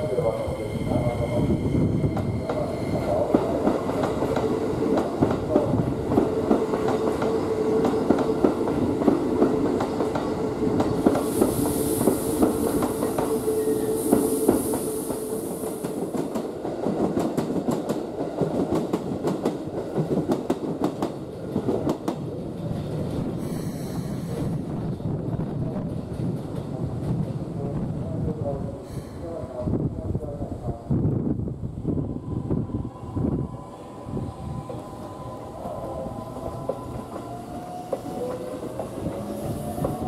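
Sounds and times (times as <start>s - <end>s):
train steady whine: 0.0s - 25.8s, 26.7s - 40.0s
high hiss: 10.9s - 16.2s.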